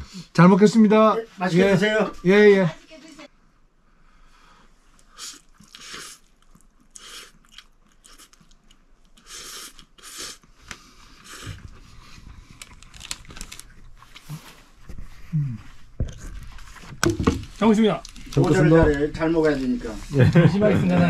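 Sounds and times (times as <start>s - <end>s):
chewing: 5.0s - 10.3s
man slurping noodles: 5.1s - 8.4s, 9.2s - 10.5s, 11.2s - 11.6s.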